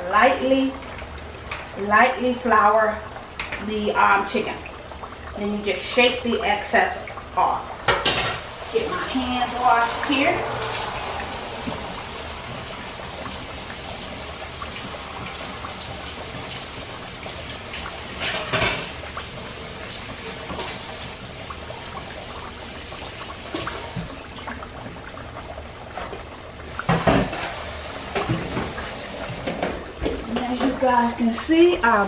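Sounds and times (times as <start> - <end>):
chicken frying in hot oil: 0.0 - 32.0.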